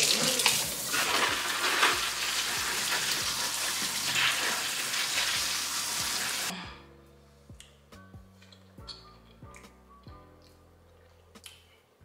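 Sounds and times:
faucet sprayer water hissing: 0.0s - 6.5s.

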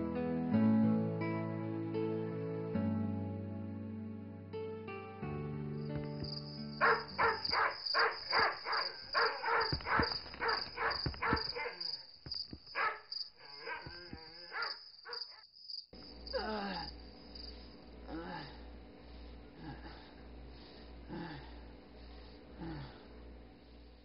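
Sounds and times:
crickets chirping: 5.8s - 24.0s
dog barking: 6.8s - 12.1s, 12.7s - 15.4s
low hum: 16.0s - 24.0s.

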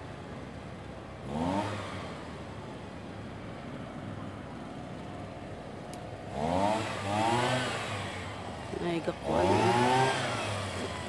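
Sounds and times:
road traffic hum: 0.0s - 11.0s
vehicle engine revving: 1.2s - 2.2s, 6.3s - 11.0s.

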